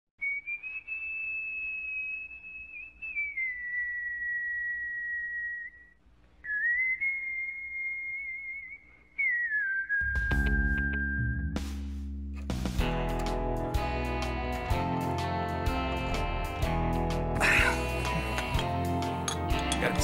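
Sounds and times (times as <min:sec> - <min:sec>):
person whistling a slow tune: 0:00.2 - 0:11.6
guitar music: 0:11.5 - 0:20.0.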